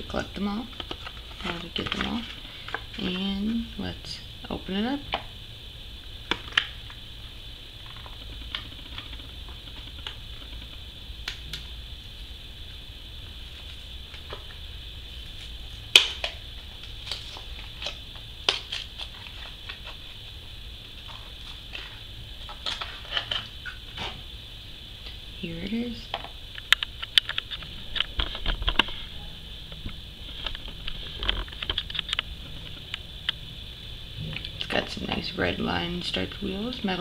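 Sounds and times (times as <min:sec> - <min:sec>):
steady high hiss: 0:00.0 - 0:37.0
plastic blister pack crackling: 0:00.5 - 0:03.5, 0:15.3 - 0:20.1.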